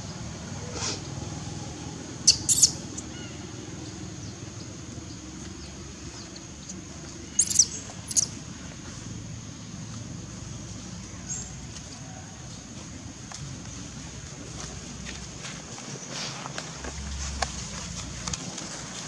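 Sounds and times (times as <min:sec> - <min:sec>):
high-pitched chirping calls: 0:02.2 - 0:03.4, 0:07.3 - 0:08.4.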